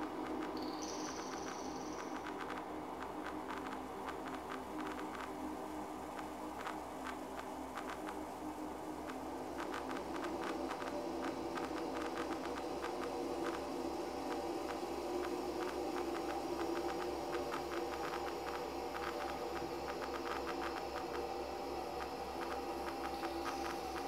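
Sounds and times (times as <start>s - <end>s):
crackling clicks: 0.0s - 5.4s, 6.1s - 8.3s, 9.0s - 13.7s, 14.3s - 21.3s
steady droning hum: 0.0s - 24.0s.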